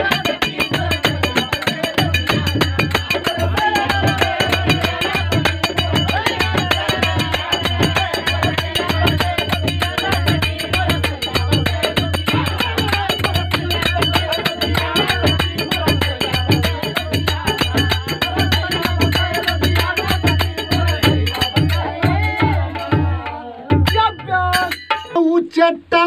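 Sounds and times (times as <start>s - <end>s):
hand drum: 0.0s - 25.2s
hand cymbals clashing: 23.9s - 25.2s.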